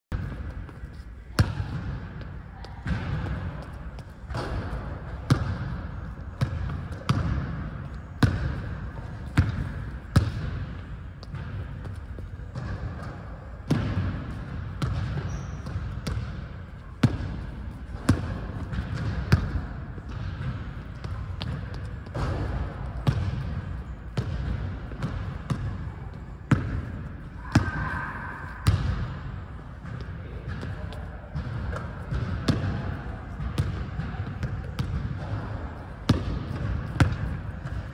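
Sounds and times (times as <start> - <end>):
basketball bouncing on wooden floor: 33.4 - 35.4, 36.1 - 37.9.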